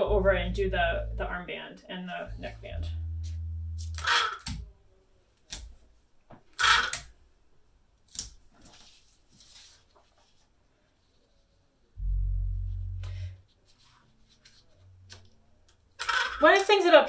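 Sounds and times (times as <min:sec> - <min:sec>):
low steady hum: 0:00.0 - 0:04.7, 0:12.0 - 0:15.9
paper rustling: 0:08.4 - 0:11.7.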